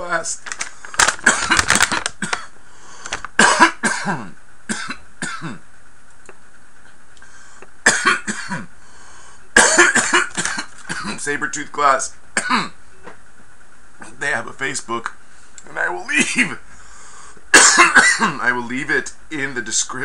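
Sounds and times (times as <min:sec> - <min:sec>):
man coughing: 0:01.0 - 0:02.5, 0:03.4 - 0:05.6, 0:07.8 - 0:08.7, 0:09.6 - 0:11.3, 0:12.4 - 0:12.8, 0:17.5 - 0:18.4.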